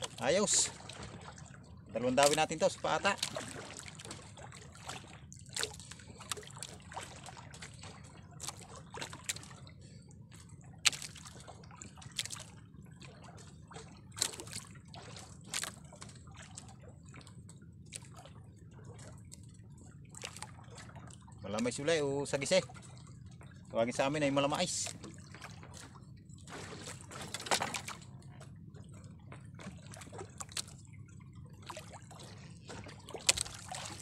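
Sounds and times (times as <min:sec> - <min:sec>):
seawater sloshing and dripping: 0:00.0 - 0:34.0
small sharp splashes: 0:02.2 - 0:09.6, 0:10.3 - 0:17.3, 0:17.9 - 0:18.3, 0:20.1 - 0:21.3, 0:24.8 - 0:28.1, 0:29.6 - 0:30.8, 0:31.6 - 0:34.0.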